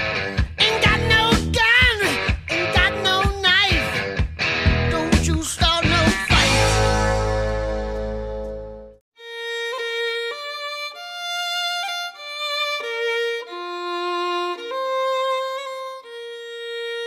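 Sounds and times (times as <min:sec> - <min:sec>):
slow solo fiddle melody: 0:09.2 - 0:17.0.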